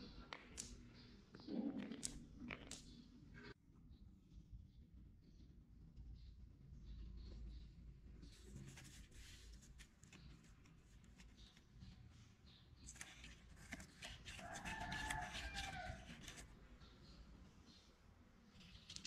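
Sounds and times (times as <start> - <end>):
fingers handling cardboard: 12.8 - 16.6.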